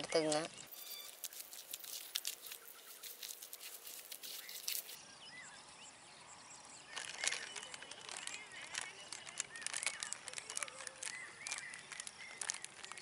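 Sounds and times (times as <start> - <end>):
birds chirping: 0.0 - 13.0
faint rural outdoor ambience: 0.0 - 13.0
hands mixing wet dough: 0.7 - 5.0.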